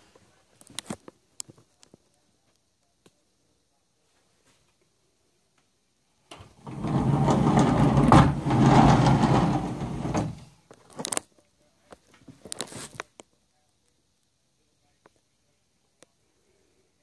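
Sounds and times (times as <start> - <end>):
sliding door rumbling on metal track: 6.3 - 10.5.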